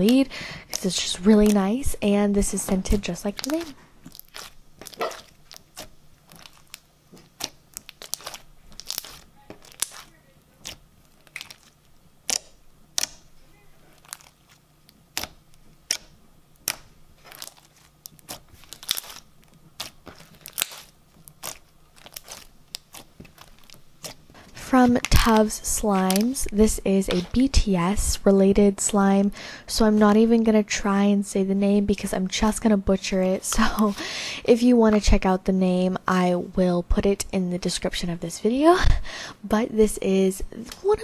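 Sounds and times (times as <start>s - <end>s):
slime crackling and popping: 0.0s - 1.9s, 2.7s - 26.5s
hands squishing slime: 0.0s - 26.5s, 27.1s - 27.5s.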